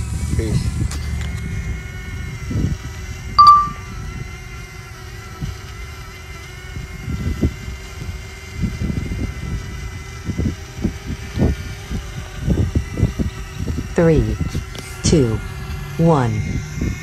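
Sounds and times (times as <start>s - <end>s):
drone propellers humming: 0.0s - 17.0s
wind gusts buffeting microphone: 6.7s - 14.7s.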